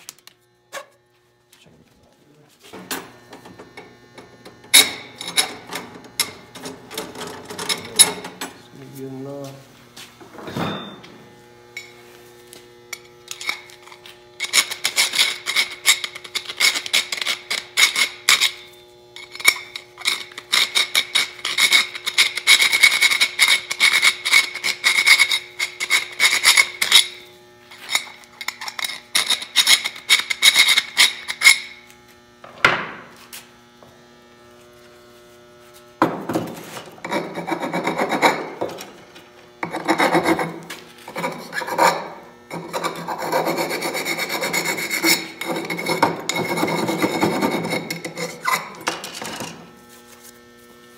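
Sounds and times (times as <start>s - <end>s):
file rasping on metal pipe: 14.4s - 18.6s, 19.2s - 27.2s, 28.1s - 31.6s, 37.0s - 38.6s, 39.6s - 49.0s.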